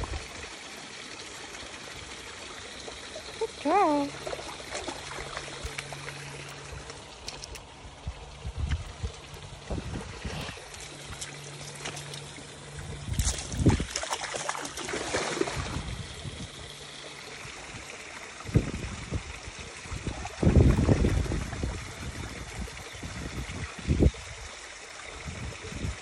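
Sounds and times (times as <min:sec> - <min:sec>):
stream trickling over stones: 0:00.0 - 0:26.0
dog splashing in water: 0:03.9 - 0:07.6, 0:09.8 - 0:16.0.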